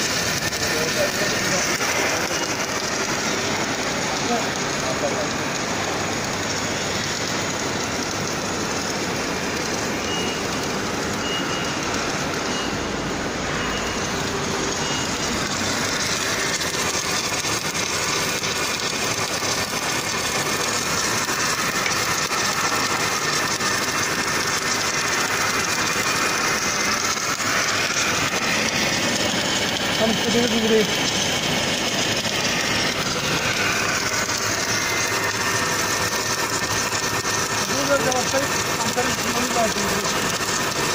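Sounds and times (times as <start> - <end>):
welding machine hissing: 0.0 - 40.9.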